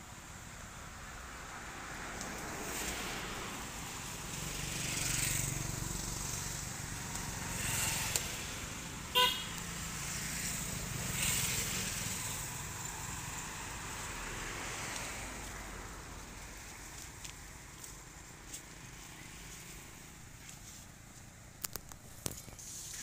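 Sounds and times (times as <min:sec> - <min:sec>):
road traffic passing: 0:00.0 - 0:23.0
vehicle horn toot: 0:09.1 - 0:09.6.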